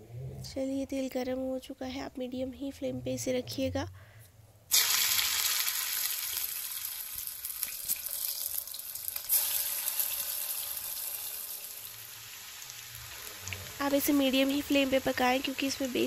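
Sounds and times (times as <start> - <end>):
food sizzling in hot oil: 4.7 - 16.0.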